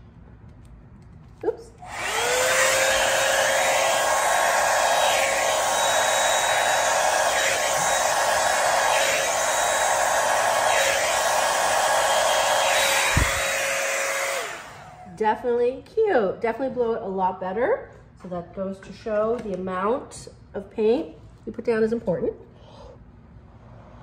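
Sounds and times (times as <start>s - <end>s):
hair dryer blowing air: 1.8s - 15.2s.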